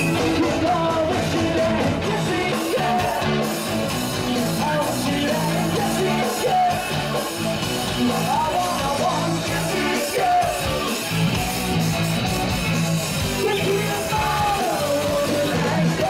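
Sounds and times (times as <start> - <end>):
man singing into a microphone: 0.0 - 3.6, 4.3 - 7.2, 8.0 - 11.1, 13.3 - 16.0
bass line: 0.0 - 16.0
electric guitar: 0.0 - 16.0.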